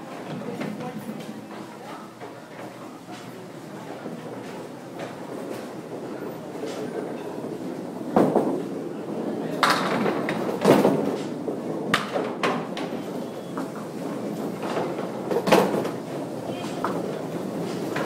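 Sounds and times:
bowling balls rolling on lanes: 0.1s - 18.0s
balls knocking pins: 11.9s - 13.0s.

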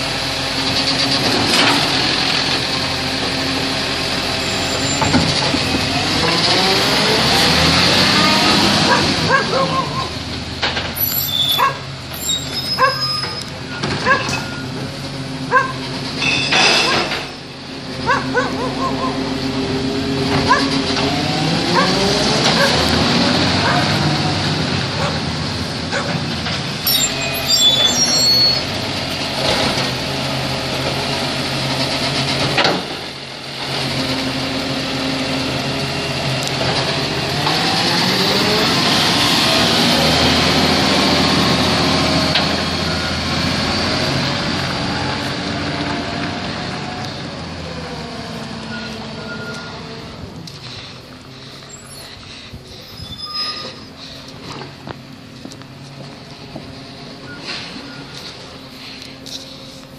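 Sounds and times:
truck diesel engine running: 0.0s - 52.8s
dog yapping: 8.9s - 10.1s, 11.5s - 11.8s, 12.8s - 13.0s, 14.0s - 14.4s, 15.5s - 15.8s, 18.1s - 19.2s.

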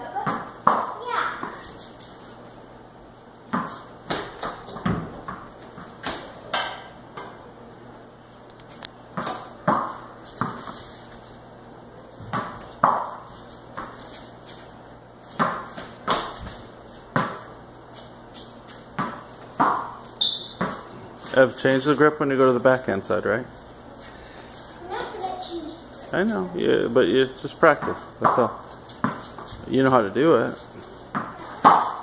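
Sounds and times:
ball bouncing on concrete: 0.0s - 1.8s, 3.5s - 7.4s, 9.1s - 10.7s, 12.2s - 14.1s, 15.3s - 21.0s, 27.6s - 32.0s
rackets hitting ball: 0.2s - 1.6s, 3.5s - 7.4s, 9.1s - 10.7s, 12.2s - 14.0s, 15.3s - 21.0s, 27.6s - 32.0s.

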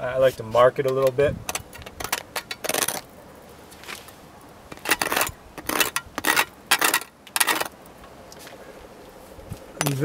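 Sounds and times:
metal scribe scratching aluminum: 0.8s - 3.1s, 4.7s - 7.8s.

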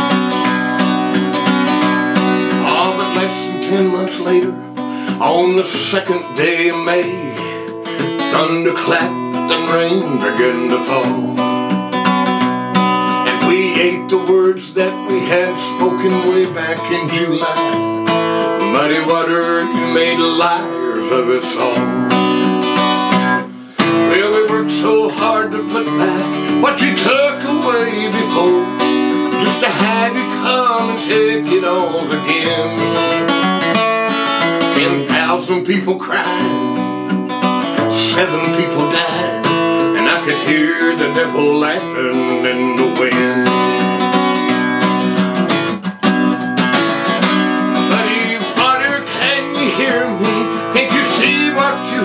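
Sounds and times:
acoustic guitar music: 0.0s - 52.0s.

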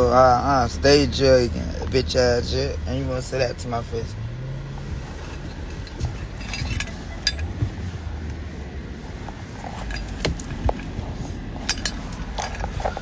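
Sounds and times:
car cabin hum: 0.0s - 13.0s.

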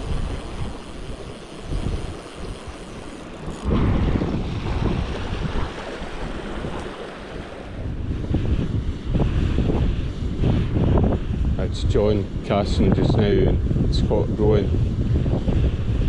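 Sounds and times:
water rushing through a weir: 0.0s - 11.2s
wind buffeting microphone: 0.0s - 16.0s.

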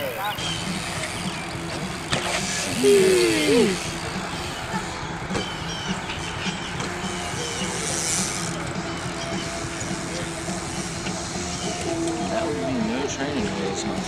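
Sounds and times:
person calling out: 2.8s - 3.8s.

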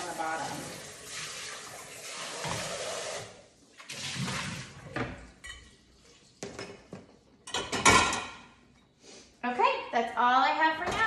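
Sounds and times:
kitchen tap running: 0.0s - 6.2s
dishes clinking in rack: 5.4s - 5.8s, 6.4s - 8.6s.

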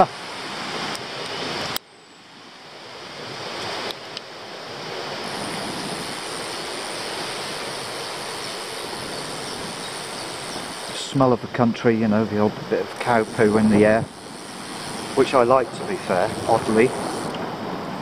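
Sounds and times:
wind noise on microphone: 5.1s - 7.9s, 8.6s - 11.6s, 12.5s - 18.0s.

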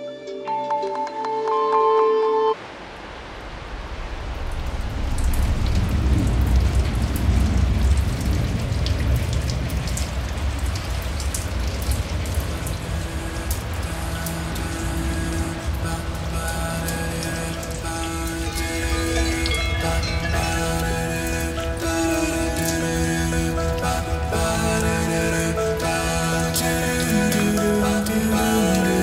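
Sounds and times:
stream rushing over rocks: 2.6s - 29.0s
deep rumble: 2.8s - 21.8s.

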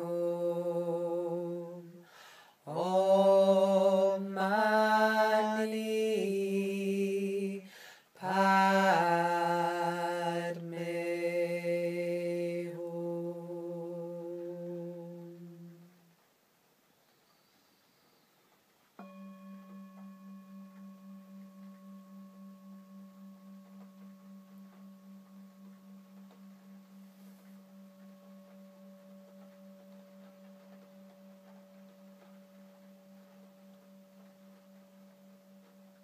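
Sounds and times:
tingsha cymbals ringing: 19.0s - 36.0s.

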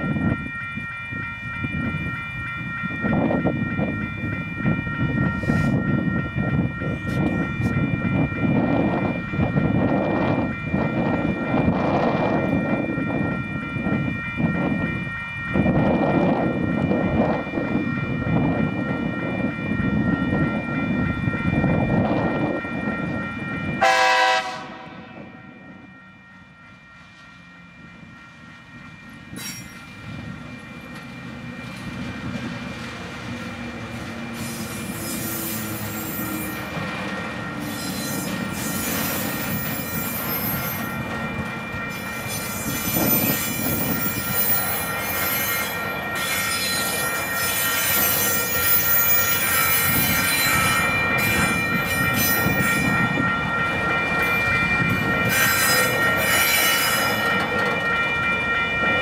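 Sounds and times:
diesel locomotives rumbling: 0.0s - 59.0s
train horn blast: 23.8s - 25.4s
level crossing bell ringing: 34.1s - 59.0s
high wheel squeal: 34.2s - 36.8s, 37.5s - 41.0s, 41.9s - 53.1s, 54.6s - 57.3s.

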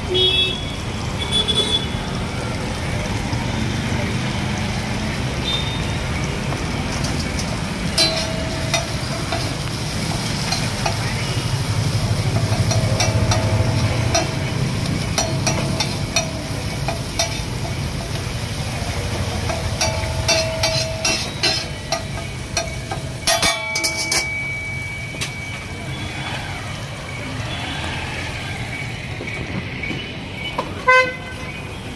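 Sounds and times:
food sizzling in oil: 0.8s - 29.1s
metal spatula clacking on griddle: 6.9s - 18.4s, 19.3s - 24.7s.

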